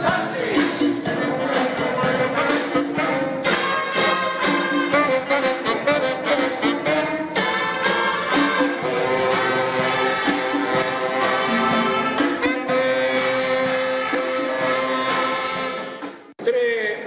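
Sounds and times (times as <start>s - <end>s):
jazz band playing: 0.0s - 16.4s.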